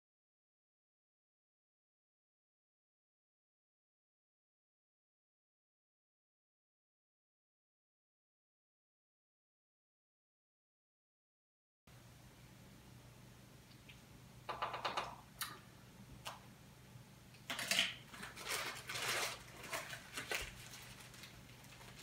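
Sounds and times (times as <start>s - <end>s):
low steady hum: 11.9s - 22.0s
plastic bag crinkling: 17.5s - 22.0s.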